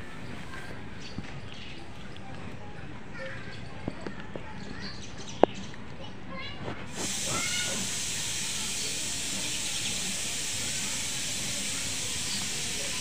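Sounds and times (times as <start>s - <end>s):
steady hiss: 6.9s - 13.0s.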